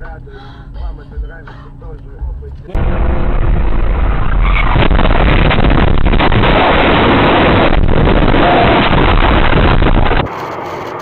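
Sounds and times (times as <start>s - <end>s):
electrical arc crackling with pops: 2.8s - 11.0s.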